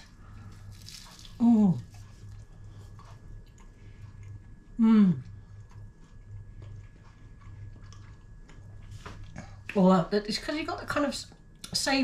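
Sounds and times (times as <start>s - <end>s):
person chewing pastry: 0.0s - 9.7s
person humming mmm: 4.7s - 5.4s.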